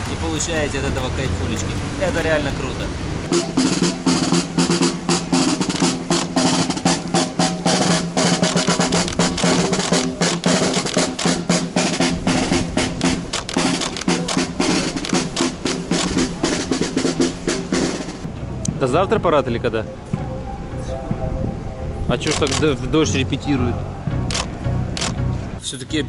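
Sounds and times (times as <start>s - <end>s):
snare drums marching cadence: 3.3s - 18.3s.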